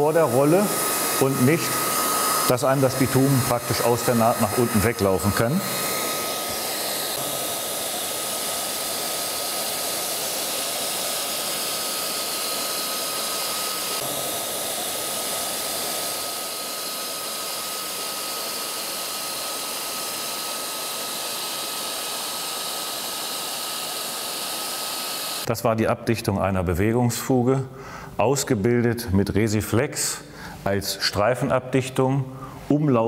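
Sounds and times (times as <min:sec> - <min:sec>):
hot-air welding gun blowing: 0:00.0 - 0:25.5.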